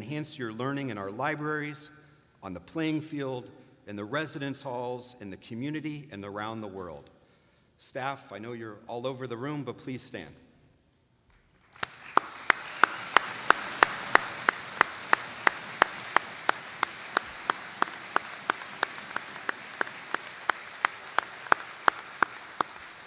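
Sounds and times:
audience applauding: 11.6 - 23.0
loud steady hand claps: 11.6 - 23.0.

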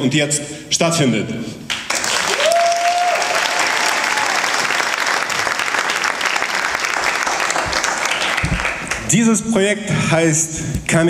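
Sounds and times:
audience applause: 1.7 - 9.1.

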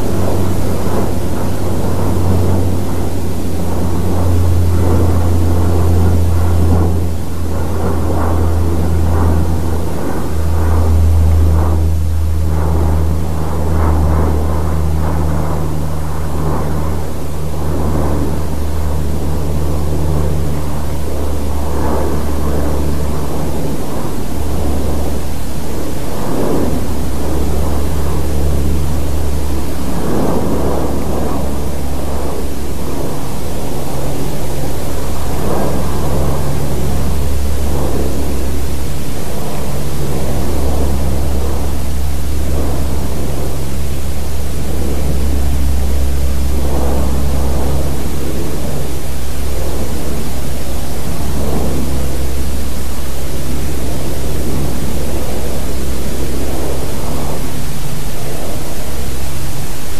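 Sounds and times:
aircraft flying over: 0.0 - 59.9
airplane engine drone: 0.0 - 59.9
wavering rush: 0.0 - 59.9.

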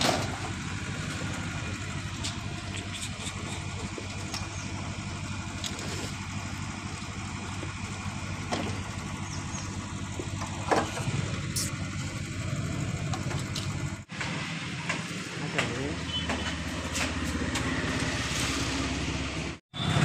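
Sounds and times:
motorcycle engine idling: 0.1 - 14.1.

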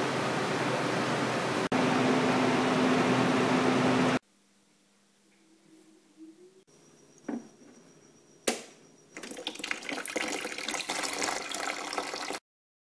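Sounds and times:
water pouring into plastic bucket: 9.2 - 12.4.

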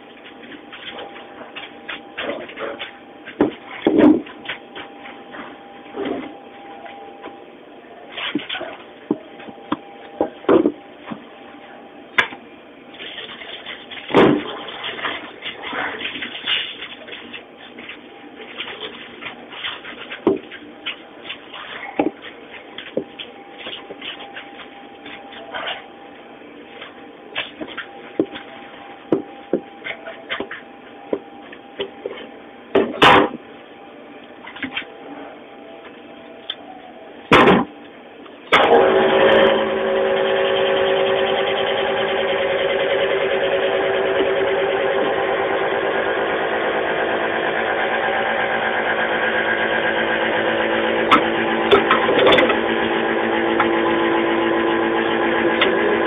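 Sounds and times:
faint machine hum: 0.0 - 56.0
items knocking and clicking: 0.1 - 6.4, 8.2 - 11.2, 13.0 - 25.8, 27.4 - 33.4.

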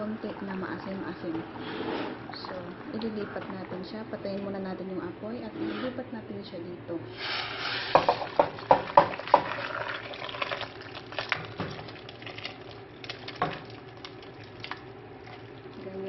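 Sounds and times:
broth splashing into pot: 7.2 - 16.0.

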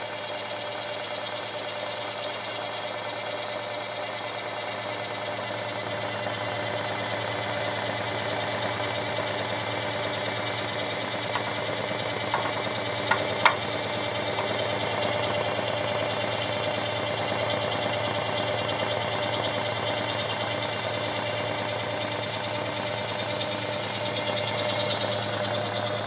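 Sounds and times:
scroll saw blade chattering: 11.2 - 15.1.

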